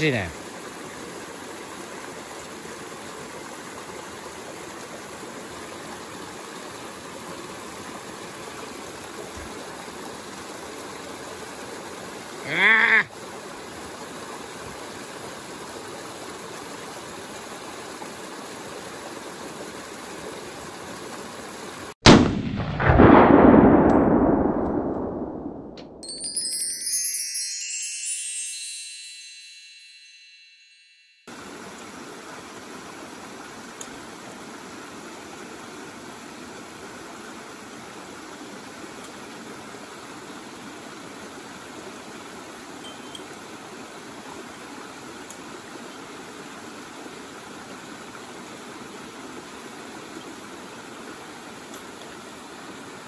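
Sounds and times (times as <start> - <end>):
mountain stream and waterfall: 0.0 - 22.0, 31.3 - 53.0
brief cry rising in pitch: 12.4 - 13.1
glittering chime: 26.0 - 31.3.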